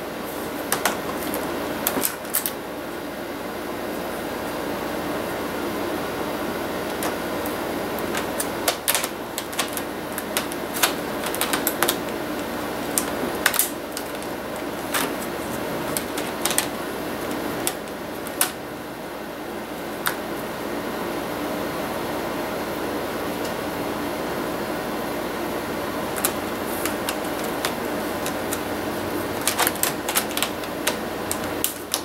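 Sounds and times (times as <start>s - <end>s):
steady hum: 0.0s - 32.0s
plastic casing clicking and snapping: 8.0s - 15.2s, 15.9s - 18.6s, 29.4s - 32.0s.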